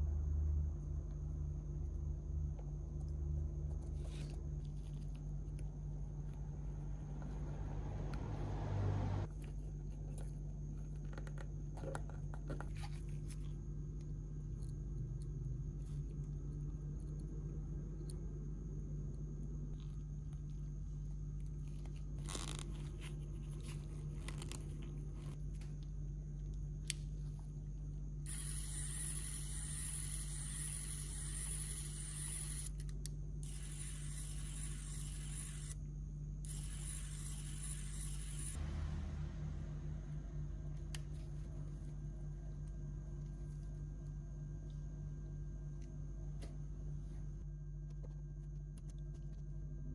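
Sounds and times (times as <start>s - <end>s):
electric screwdriver motor running: 28.3s - 32.7s.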